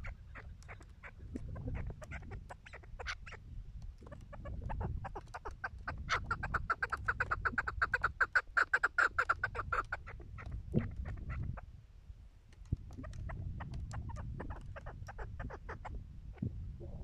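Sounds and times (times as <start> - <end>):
partridges clucking: 0.0 - 11.6.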